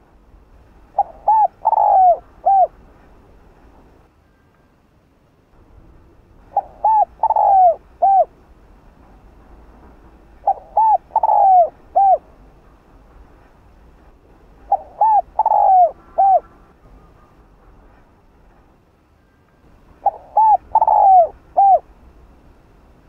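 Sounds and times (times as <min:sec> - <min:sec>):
dove cooing: 0:00.9 - 0:02.8, 0:06.5 - 0:08.3, 0:10.4 - 0:12.2, 0:14.7 - 0:16.6, 0:20.0 - 0:21.9.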